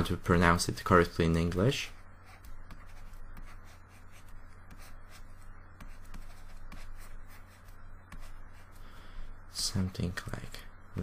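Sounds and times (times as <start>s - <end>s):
steady low hum: 0.0s - 11.0s
stylus scratching on tablet: 1.7s - 8.8s.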